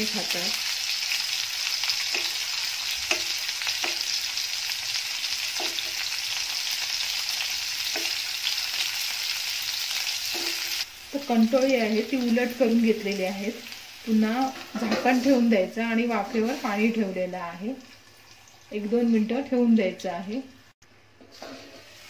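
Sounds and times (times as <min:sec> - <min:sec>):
gourds sizzling in oil: 0:00.0 - 0:22.0
steel spoon scraping a pan: 0:10.0 - 0:10.9, 0:14.5 - 0:15.4, 0:21.2 - 0:22.0.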